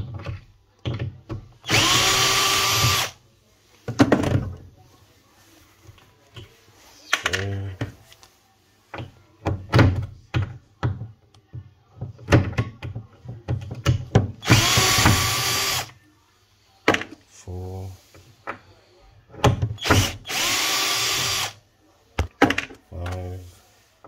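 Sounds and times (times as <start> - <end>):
cordless drill running: 1.7 - 3.2, 14.4 - 15.9, 19.8 - 21.6.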